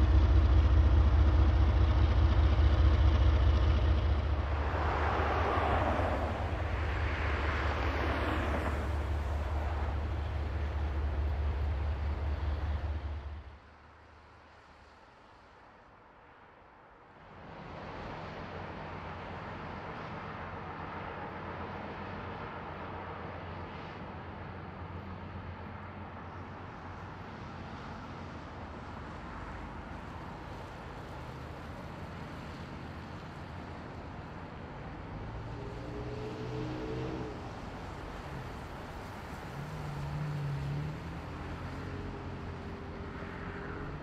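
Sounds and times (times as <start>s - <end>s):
distant diesel locomotive rumble: 0.0s - 13.6s.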